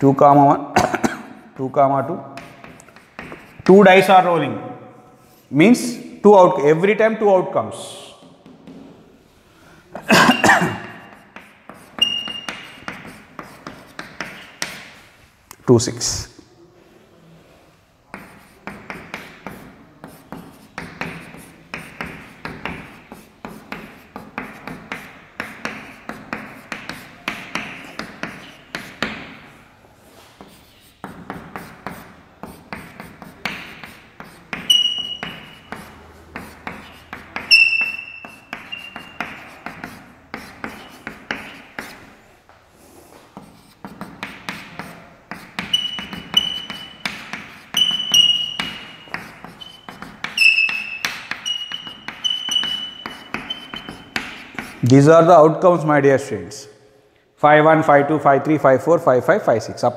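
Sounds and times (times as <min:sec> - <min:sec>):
chalk tapping and scratching: 0:02.3 - 0:04.2, 0:08.2 - 0:09.0, 0:10.0 - 0:15.2, 0:18.1 - 0:55.0
high-pitched chalk squeaks: 0:10.1 - 0:15.0, 0:18.1 - 0:29.4, 0:30.1 - 0:42.2, 0:42.8 - 0:54.9.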